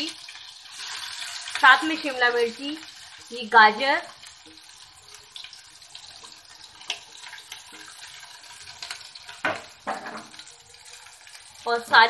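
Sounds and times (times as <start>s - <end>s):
vegetables sizzling in hot oil: 0.0s - 12.0s
steel plate knocking on pan: 9.4s - 10.4s.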